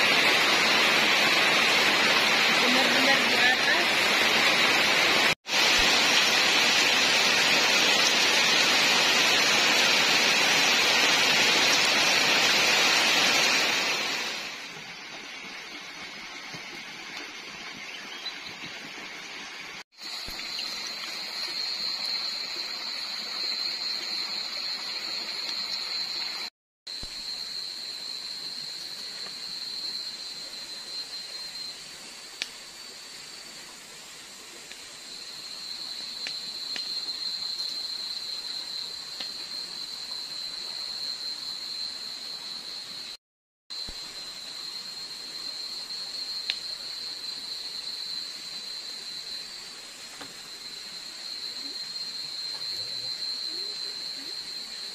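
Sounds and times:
campfire crackling: 33.4s - 40.5s, 46.4s - 46.8s.

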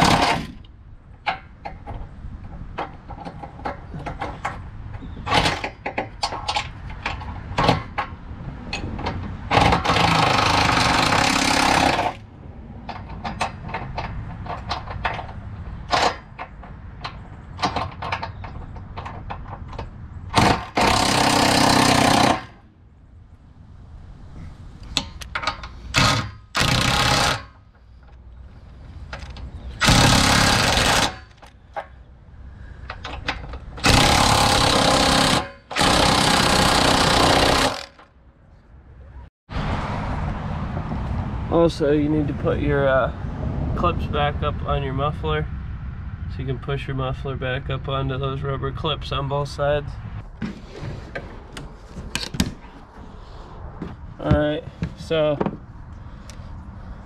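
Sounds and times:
metallic clicks and knocks: 0.1s - 10.1s, 12.8s - 20.9s, 24.9s - 28.2s
impact wrench running: 9.5s - 12.2s, 20.3s - 22.6s, 25.9s - 27.6s, 29.8s - 31.4s, 33.8s - 38.0s.

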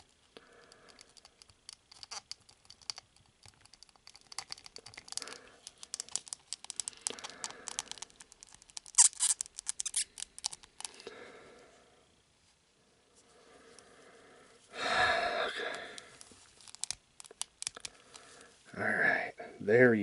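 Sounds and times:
plastic parts clicking and scraping: 0.0s - 11.1s, 16.0s - 18.4s.

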